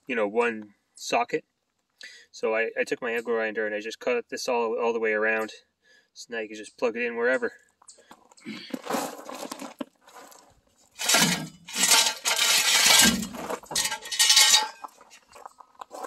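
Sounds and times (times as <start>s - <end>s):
metal scraping on gravel: 8.7s - 16.0s
metal stands clanking: 11.0s - 15.4s.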